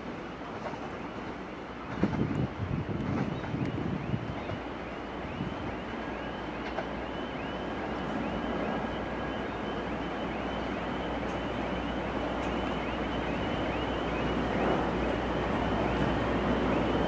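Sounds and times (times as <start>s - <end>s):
train rumbling on tracks: 0.0s - 17.0s
wind on microphone: 1.9s - 5.8s.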